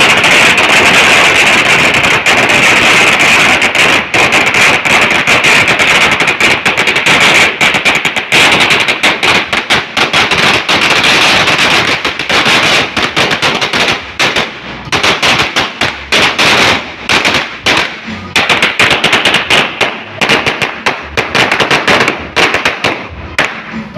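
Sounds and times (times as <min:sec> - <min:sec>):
firecracker string crackling bangs: 0:00.0 - 0:23.9.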